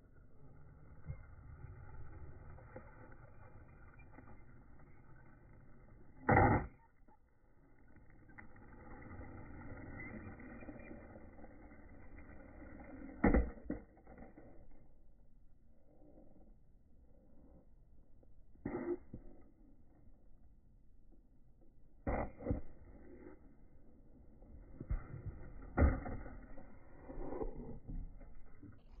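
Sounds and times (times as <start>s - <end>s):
skateboard wheels rolling: 7.7s - 14.5s.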